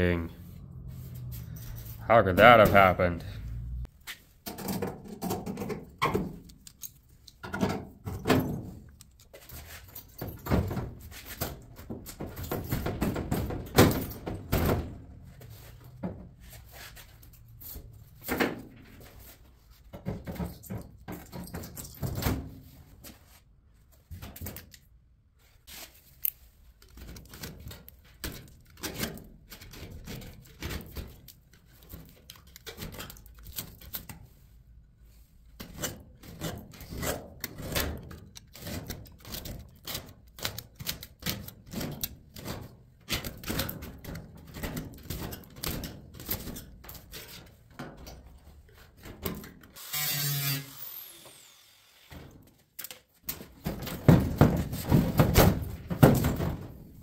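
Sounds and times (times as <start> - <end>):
thuds on sheet metal: 53.6 - 56.8.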